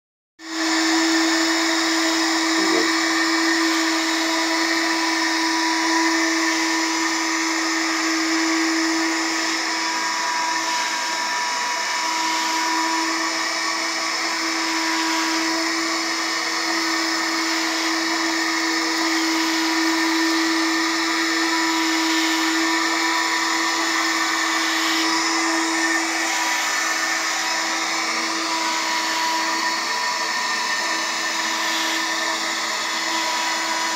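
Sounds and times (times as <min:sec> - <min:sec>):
window cleaner suction fan hum: 0:00.4 - 0:33.9
air hissing: 0:00.8 - 0:13.2.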